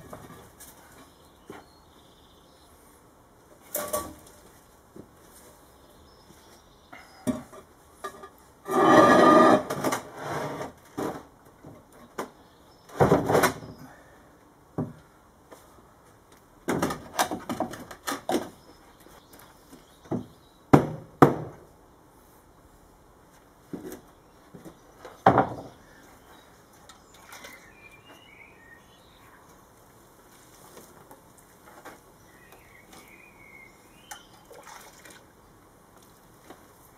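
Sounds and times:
wood scraping on plywood: 8.7s - 11.2s
wood and stone thudding on plywood: 12.9s - 13.8s, 16.7s - 18.6s, 20.1s - 21.6s, 25.2s - 25.8s.

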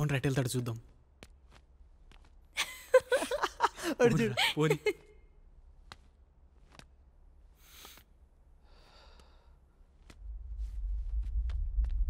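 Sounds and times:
soft footsteps: 0.4s - 4.2s, 5.4s - 12.0s
low rumble: 9.8s - 12.0s.

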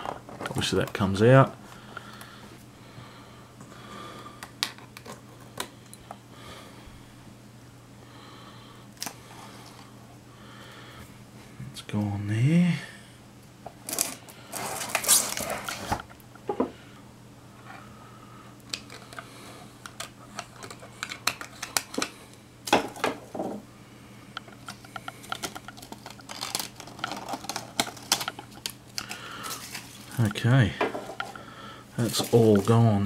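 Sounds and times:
scraping and crinkling packaging: 13.8s - 16.1s, 20.0s - 22.2s, 24.6s - 30.3s, 32.0s - 33.0s.

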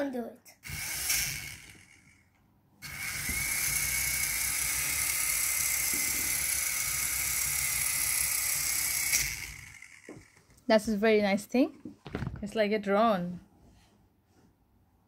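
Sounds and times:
toy helicopter motor whine: 0.6s - 10.6s.

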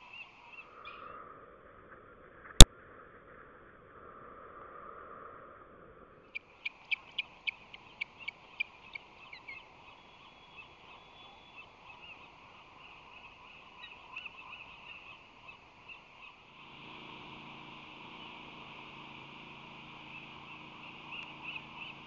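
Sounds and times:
ospreys chirping: 6.3s - 22.0s
steady hiss: 6.4s - 22.0s.

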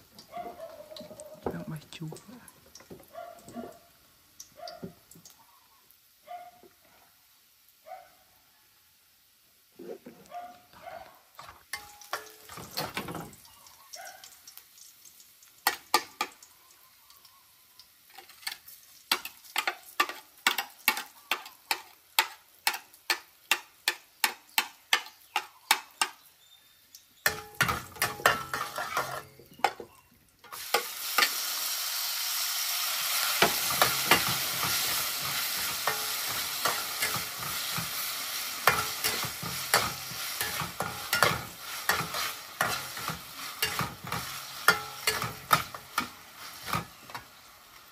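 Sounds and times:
meat sizzling in hot oil: 0.0s - 7.8s, 8.6s - 9.8s, 11.4s - 47.9s
metal spatula scraping wok: 27.3s - 29.9s, 33.1s - 47.4s.

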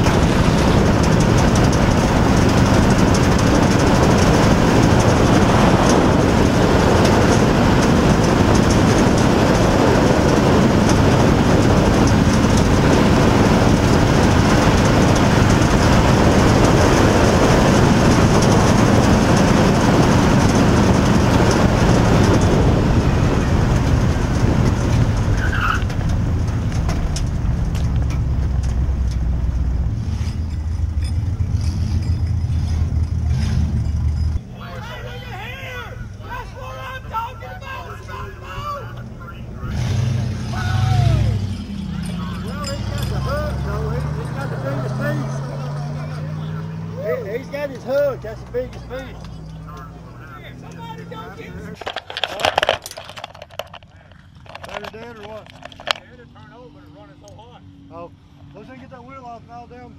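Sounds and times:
wind noise: 0.0s - 34.4s
track noise: 0.0s - 59.7s
race car engine running hard: 0.0s - 59.9s.

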